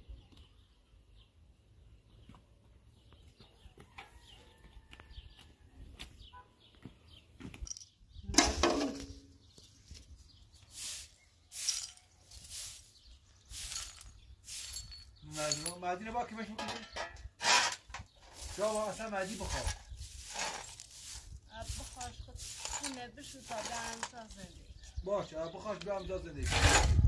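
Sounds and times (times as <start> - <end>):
straw broom sweeping dirt: 8.4 - 15.7, 17.4 - 24.6, 26.4 - 27.0.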